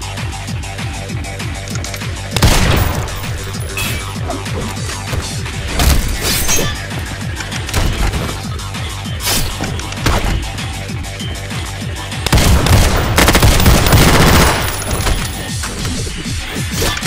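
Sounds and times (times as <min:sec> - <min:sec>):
background music with steady beat: 0:00.0 - 0:17.0
pistol fire burst: 0:02.3 - 0:03.7, 0:12.3 - 0:15.5.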